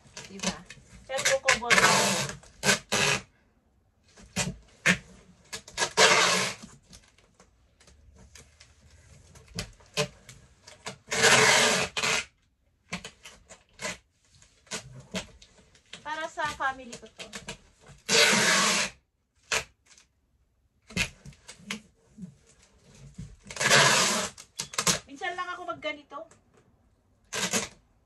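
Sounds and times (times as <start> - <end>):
packing tape pulled off roll: 0.0 - 3.3, 4.2 - 7.3, 9.3 - 14.0, 17.0 - 20.1, 22.9 - 25.0, 27.2 - 27.8
tape rubbing on cardboard: 0.0 - 3.3, 4.2 - 6.9, 9.0 - 19.8, 20.9 - 25.0, 27.2 - 27.8.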